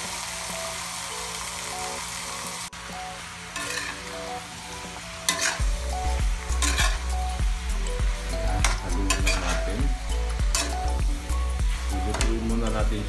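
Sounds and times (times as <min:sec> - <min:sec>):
chicken sizzling in oil: 0:00.0 - 0:13.0
metal spoon scraping wok: 0:03.5 - 0:04.4, 0:05.2 - 0:07.4, 0:08.6 - 0:09.7, 0:10.4 - 0:11.0.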